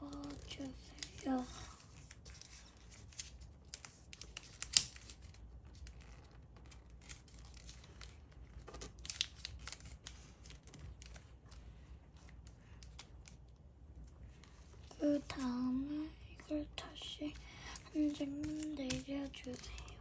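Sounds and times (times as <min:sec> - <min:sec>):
paper rustling and crinkling: 0:00.0 - 0:13.5, 0:16.8 - 0:20.0.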